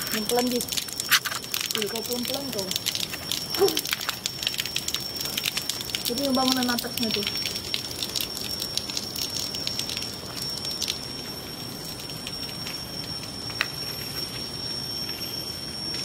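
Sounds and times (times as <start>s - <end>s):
crackling steps on broken glass: 0.0s - 5.8s
high-pitched whine: 9.6s - 16.0s.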